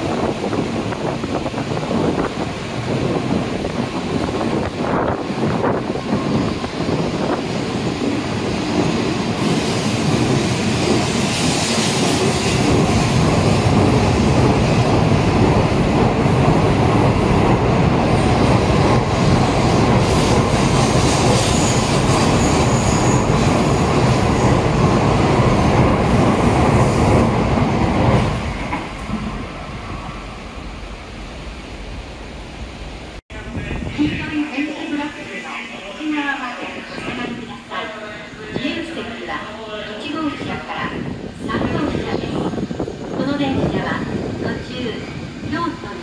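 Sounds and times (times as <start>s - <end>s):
train rushing past: 0.0s - 46.0s.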